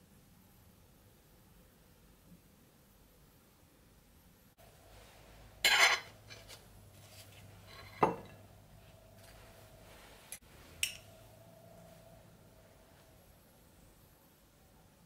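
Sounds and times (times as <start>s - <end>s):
cutlery clinking on plate: 5.6s - 6.6s, 7.7s - 8.4s
knife scraping ceramic plate: 5.6s - 6.6s, 7.7s - 8.3s.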